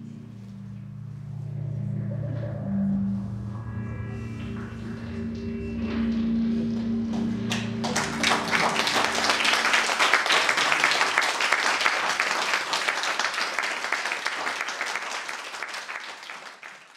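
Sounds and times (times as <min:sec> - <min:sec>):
low held musical note: 0:00.0 - 0:11.0
audience applauding: 0:07.5 - 0:16.9.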